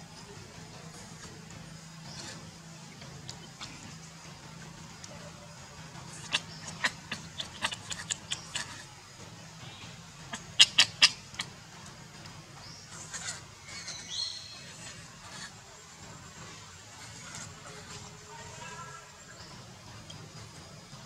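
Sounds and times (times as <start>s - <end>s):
baby monkey squeaking: 6.1s - 8.8s, 10.3s - 11.4s, 12.9s - 15.5s
baby monkey wavering cry: 10.3s - 11.5s, 12.9s - 15.5s.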